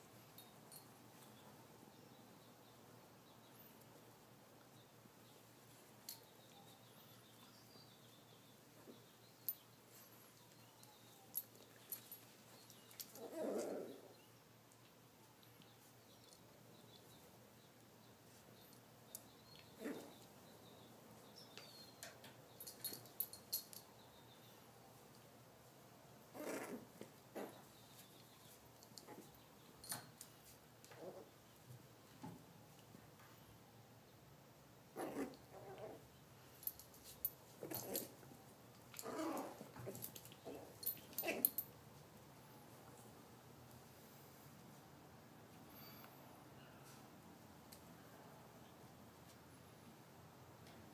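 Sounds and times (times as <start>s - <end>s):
small clicks and rustles: 8.8s - 13.8s, 26.6s - 33.5s, 35.1s - 42.1s
dog growling: 13.2s - 14.1s, 26.3s - 27.6s, 35.0s - 36.0s, 39.0s - 41.5s.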